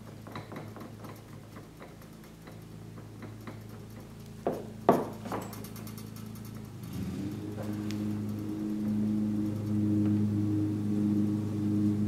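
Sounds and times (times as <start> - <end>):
low hum: 3.7 - 12.0.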